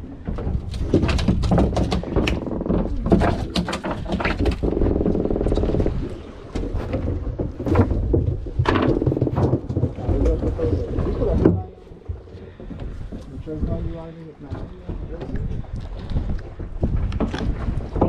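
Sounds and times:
sharp knocks and clicks: 0:00.2 - 0:18.0
fish croaking: 0:02.0 - 0:07.8.

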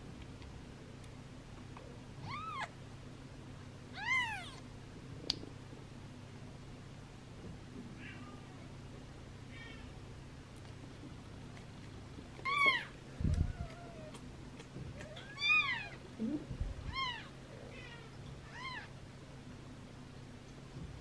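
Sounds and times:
kitten mewing: 0:04.0 - 0:04.6.

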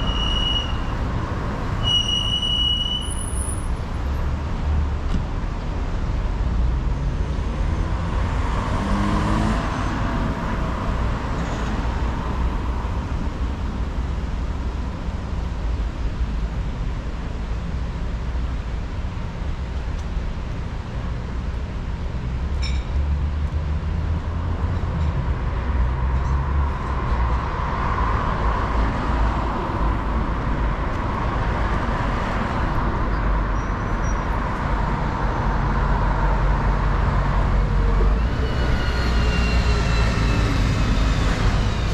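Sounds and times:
cars driving past: 0:06.4 - 0:13.6, 0:22.2 - 0:41.9.

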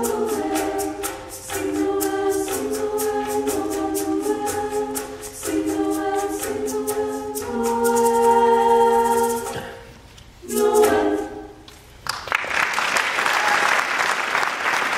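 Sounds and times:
female vocal ensemble singing chord: 0:00.0 - 0:11.7
audience applause: 0:12.0 - 0:14.9.

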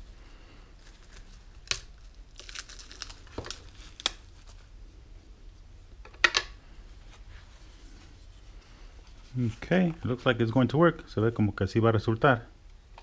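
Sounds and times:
plastic wrap crinkling: 0:00.4 - 0:04.8.

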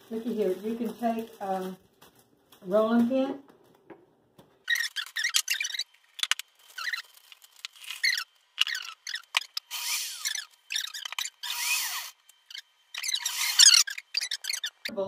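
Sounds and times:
food processor grinding: 0:07.9 - 0:12.2, 0:13.0 - 0:14.6.

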